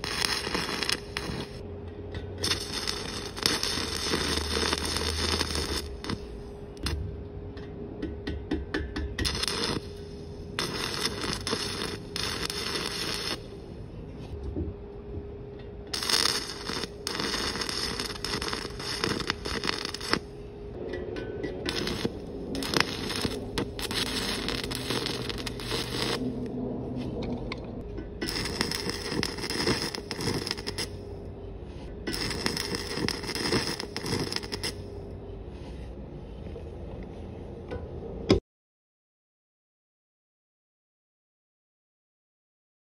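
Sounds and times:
welding arc burning: 0.0 - 1.6, 2.4 - 7.0, 9.2 - 13.6, 15.9 - 20.4, 21.6 - 26.6, 28.2 - 31.1, 32.1 - 35.0.

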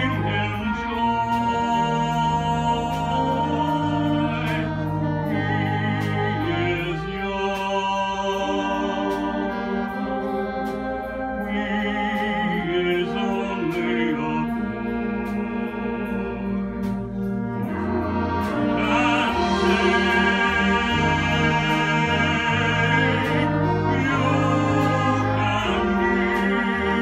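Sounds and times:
concert band playing slow ballad: 0.0 - 27.0.

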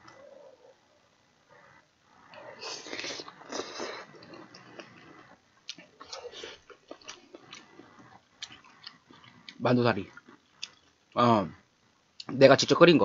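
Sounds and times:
person slurping noodles: 2.6 - 5.1
chewing with wet mouth clicks: 3.0 - 10.9.

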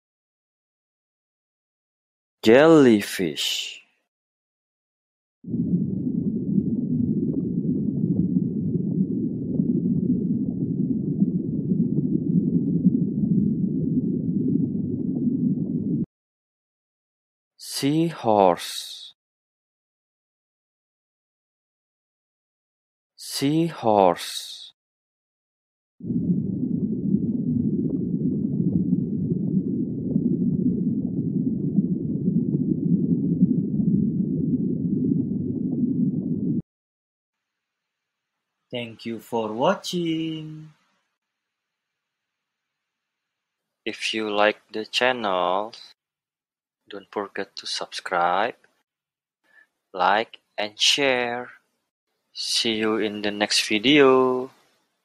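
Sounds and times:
muffled underwater rushing: 5.5 - 16.1, 26.0 - 36.6.

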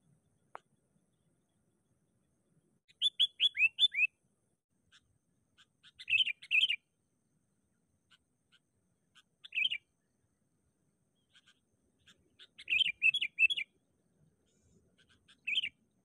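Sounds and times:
bulbul chirping: 2.9 - 4.1, 5.6 - 6.8, 9.2 - 9.8, 15.0 - 15.8.

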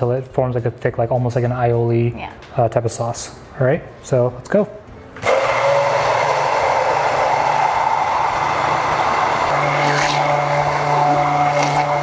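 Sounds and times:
hand blender motor whirring: 5.2 - 12.0.

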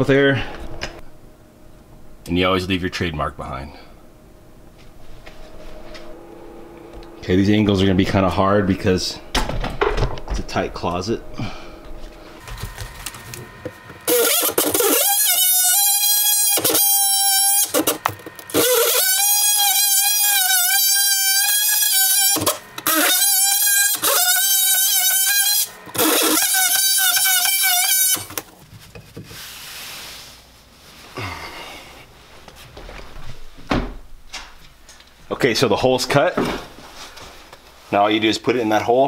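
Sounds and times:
multi-tool cutting drywall: 12.4 - 28.6.

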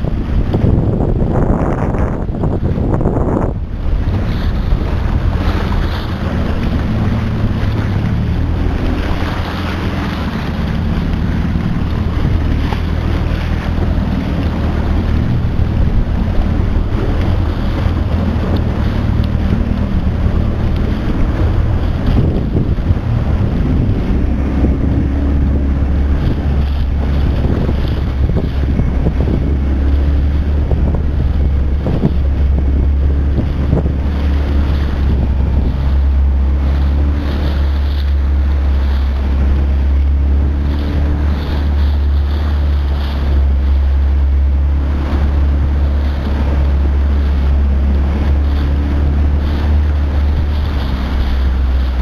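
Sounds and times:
outboard motor running: 0.0 - 52.0
water splashing against hull: 0.0 - 52.0
wind buffeting microphone: 0.0 - 52.0.

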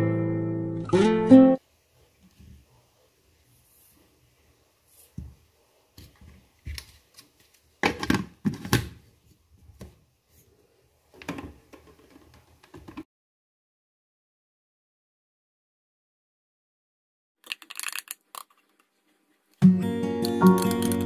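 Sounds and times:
plastic knocks and rattles: 11.2 - 13.0.

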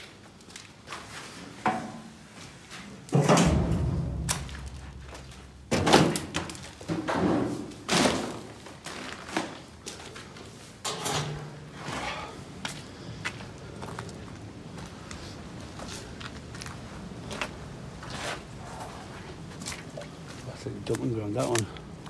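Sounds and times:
heavy thuds on rubble: 3.2 - 8.5
low rumble: 3.4 - 5.7.

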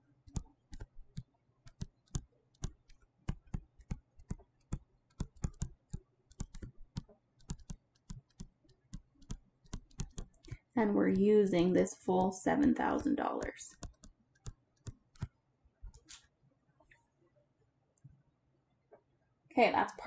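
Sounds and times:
stylus tapping on tablet screen: 0.3 - 11.3, 12.2 - 16.2.

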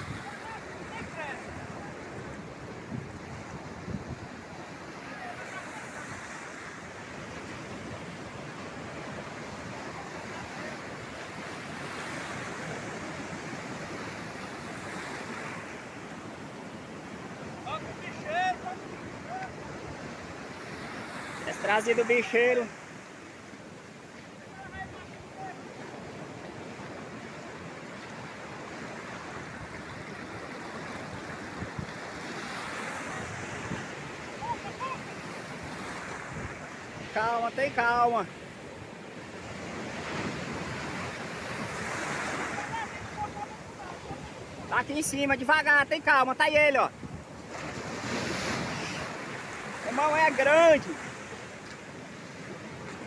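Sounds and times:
ocean surf breaking: 0.0 - 53.0.

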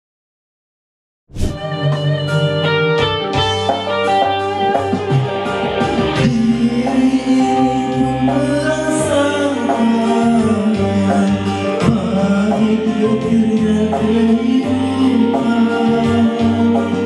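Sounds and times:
backing music track: 1.5 - 17.0
man singing into a microphone: 6.1 - 17.0.

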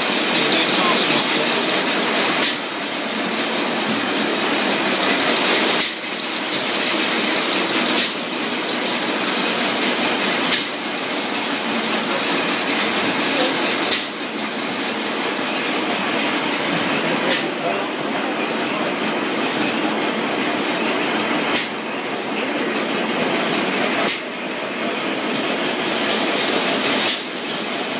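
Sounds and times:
stationary engine running: 0.0 - 27.9.

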